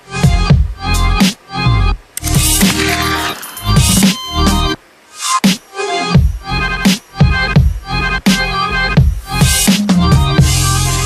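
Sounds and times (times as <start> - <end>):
electronic music with heavy bass: 2.2 - 4.8.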